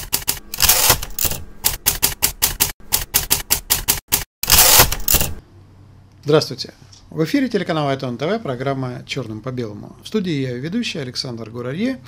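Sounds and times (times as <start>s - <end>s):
typewriter keys clacking: 0.0s - 5.4s
typewriter rasping sweep: 0.0s - 5.4s.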